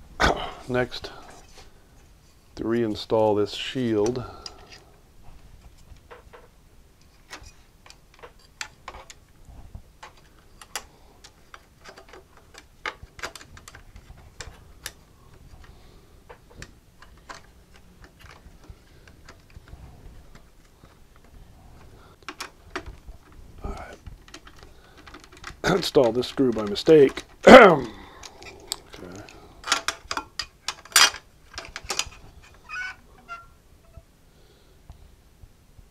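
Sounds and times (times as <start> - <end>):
sheet metal and wire clicking: 22.1 - 33.5.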